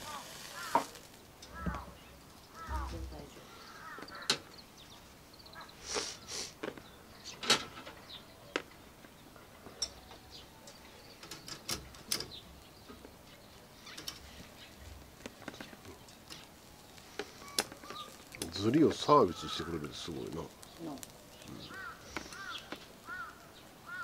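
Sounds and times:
short hisses: 5.8s - 6.6s.

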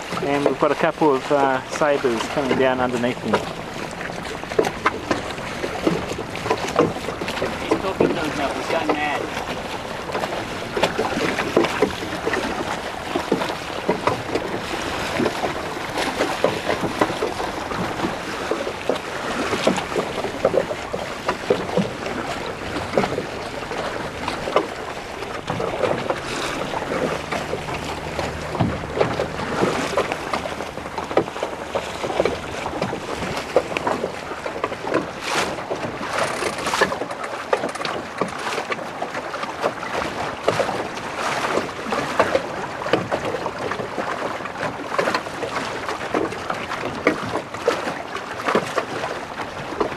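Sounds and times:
wind buffeting microphone: 0.0s - 37.0s
water splashing against boat hull: 0.0s - 49.9s.

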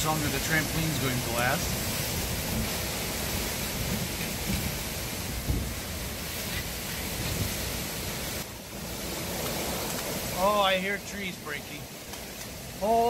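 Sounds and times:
wind buffeting microphone: 0.0s - 10.3s
driving rain: 0.0s - 13.0s.

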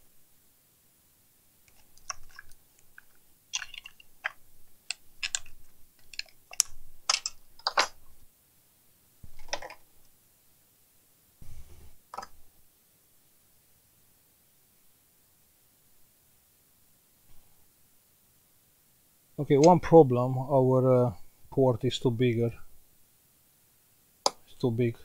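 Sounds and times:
hand tool clicking and tapping: 3.6s - 7.9s.

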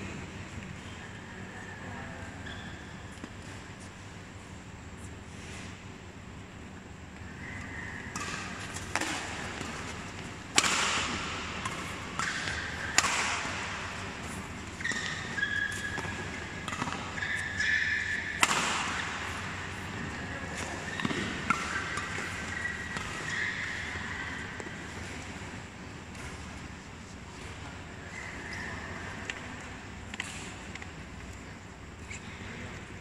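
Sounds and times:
shoes squeaking on court floor: 1.8s - 4.0s, 7.2s - 32.8s
rackets striking shuttlecock: 7.4s - 24.7s.

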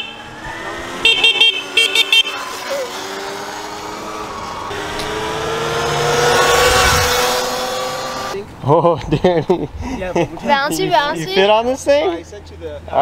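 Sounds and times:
horn short beeps: 1.0s - 2.4s.

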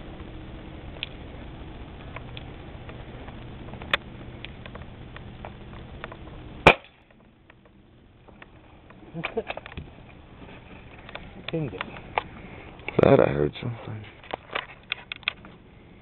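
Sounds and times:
low steady hiss: 0.0s - 16.0s
pellet gun shots: 6.6s - 7.0s.

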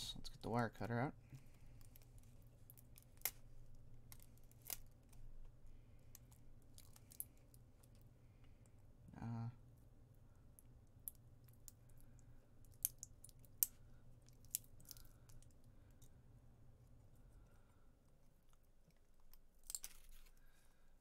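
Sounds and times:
wire cutters clicking and crunching: 19.3s - 20.4s.

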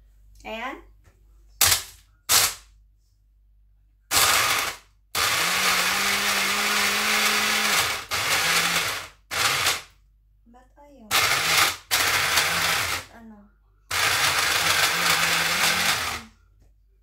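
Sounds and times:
blender chopping ice: 4.1s - 9.9s, 11.1s - 13.1s, 13.9s - 16.3s.

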